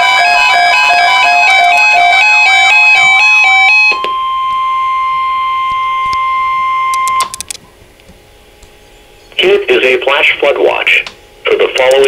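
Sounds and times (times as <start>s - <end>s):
electronic alert melody beeps: 0.3s - 7.5s.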